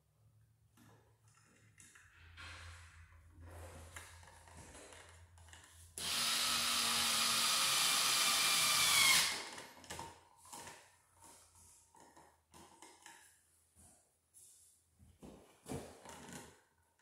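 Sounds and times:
electric screw gun whine: 0:06.0 - 0:09.6
faint clicks and handling noise: 0:09.5 - 0:13.5.

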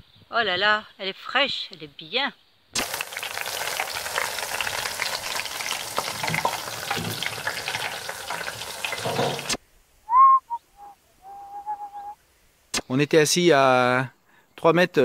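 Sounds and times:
fritters sizzling in hot oil: 0:02.8 - 0:09.6
short whistle-like calls: 0:10.0 - 0:12.2.

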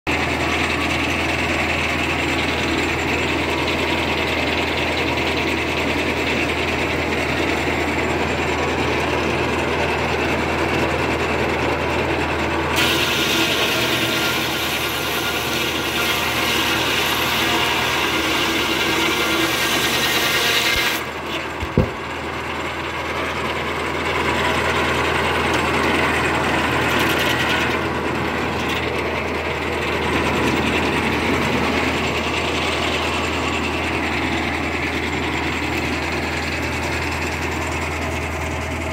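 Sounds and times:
saw ripping through log: 0:12.7 - 0:22.2, 0:24.3 - 0:37.5
engine hum: 0:21.0 - 0:38.9
knock: 0:21.6 - 0:22.0.

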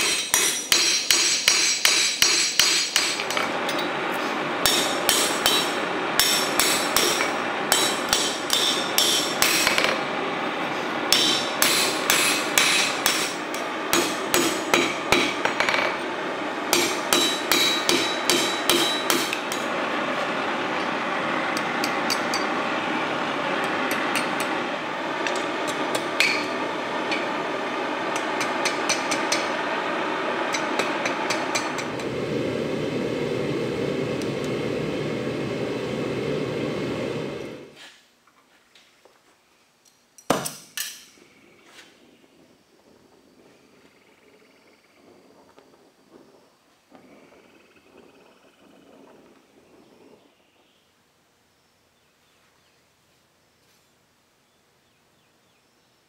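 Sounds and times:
hammer striking steel on anvil: 0:00.0 - 0:03.8, 0:04.6 - 0:10.0, 0:11.1 - 0:16.0, 0:16.7 - 0:19.7, 0:21.6 - 0:22.5, 0:25.2 - 0:26.5, 0:28.1 - 0:29.5
steady rushing noise: 0:03.0 - 0:37.8, 0:44.9 - 0:50.6.

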